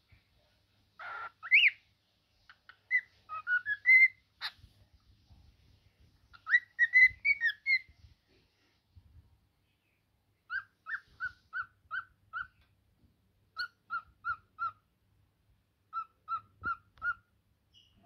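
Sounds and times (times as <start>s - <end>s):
cockatiel whistling notes: 2.9s - 4.6s, 6.4s - 7.9s, 10.5s - 12.6s.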